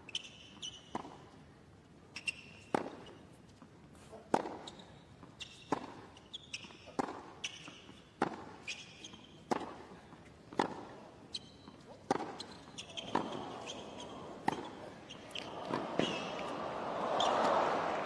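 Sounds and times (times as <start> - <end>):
shoe squeaks: 0.1 - 0.9, 2.1 - 3.3, 4.1 - 9.5, 11.3 - 16.4
racquets striking tennis ball: 5.6 - 9.9, 10.5 - 17.9
ball bouncing: 12.1 - 16.5.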